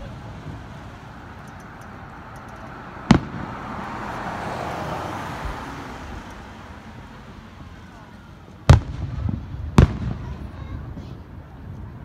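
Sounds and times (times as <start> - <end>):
car passing by: 0.0 - 9.6
firework shell bang: 3.1 - 3.6, 8.7 - 10.7.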